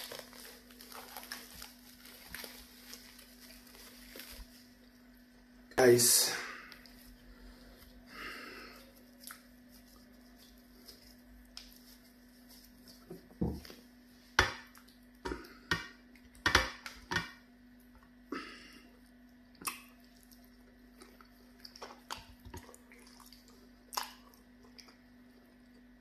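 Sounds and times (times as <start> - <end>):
wet eating and lip smacks: 8.8 - 11.8, 14.6 - 16.4, 19.0 - 26.0.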